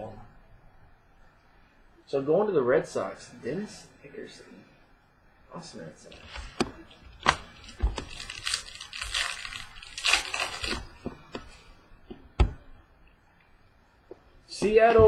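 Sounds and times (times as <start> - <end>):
cards rustling and shuffling: 6.0 - 11.7.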